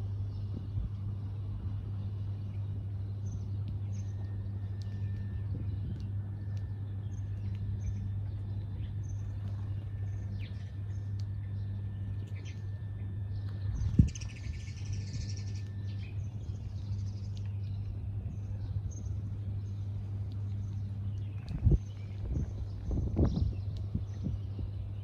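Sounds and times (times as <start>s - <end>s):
sparrows chirping: 0.0s - 25.0s
steady low hum: 0.0s - 25.0s.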